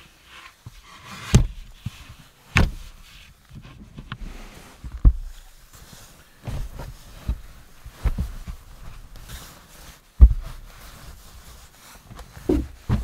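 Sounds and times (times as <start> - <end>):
blankets rustling: 0.0 - 13.0
dull thumps on bed platform: 4.8 - 5.4, 6.4 - 8.7, 10.2 - 10.6, 12.4 - 13.0.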